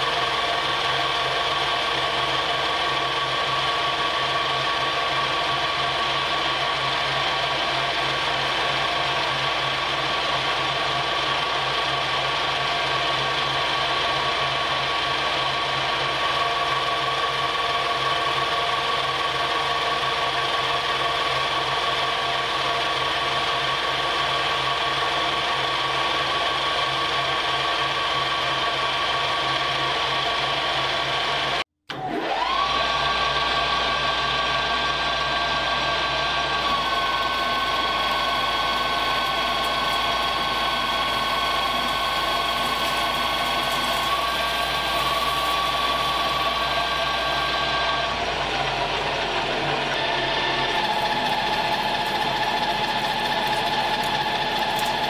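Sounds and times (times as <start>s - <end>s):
metal lathe whining: 0.0s - 55.0s.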